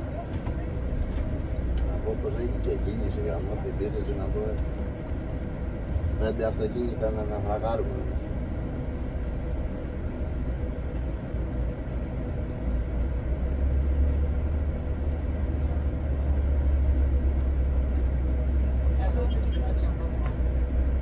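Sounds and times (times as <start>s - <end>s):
bus engine rumble: 0.0s - 21.0s.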